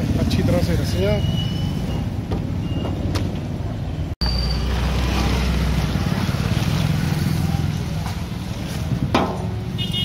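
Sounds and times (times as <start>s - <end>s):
street traffic: 0.0s - 10.0s
wind: 0.0s - 10.0s.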